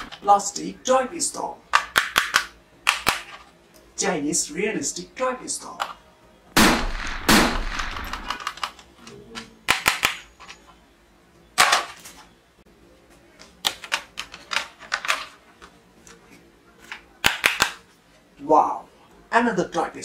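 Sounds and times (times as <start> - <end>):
plastic toy guns clicking: 1.8 - 3.4, 9.7 - 10.2, 17.2 - 17.8
toy pistol gunshot effects: 6.6 - 8.4.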